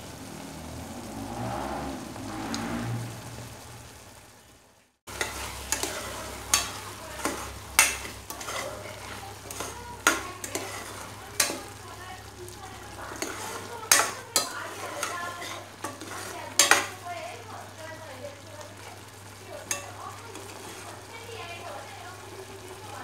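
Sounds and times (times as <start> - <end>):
metal spoon scraping saucepan: 5.1 - 11.8, 13.1 - 17.0, 19.7 - 21.0.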